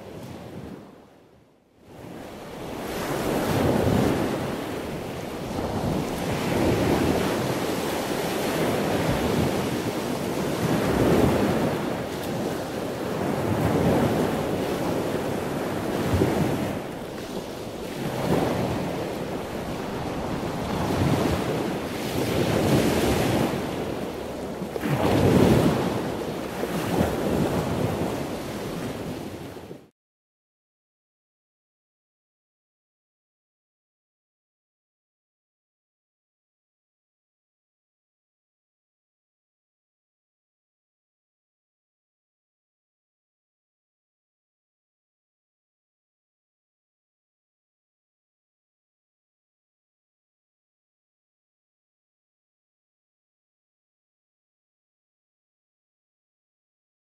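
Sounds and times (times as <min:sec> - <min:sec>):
ocean surf on sandy beach: 0:00.0 - 0:29.9.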